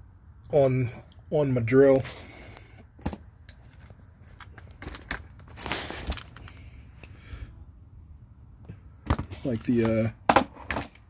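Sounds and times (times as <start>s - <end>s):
rustling scrape: 3.6s - 6.7s
tool cases clicking and knocking: 9.1s - 11.0s.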